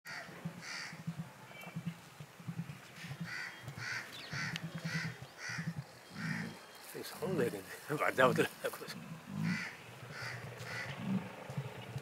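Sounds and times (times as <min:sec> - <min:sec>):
bird cawing: 0:00.1 - 0:01.0, 0:03.2 - 0:06.6, 0:09.3 - 0:11.2.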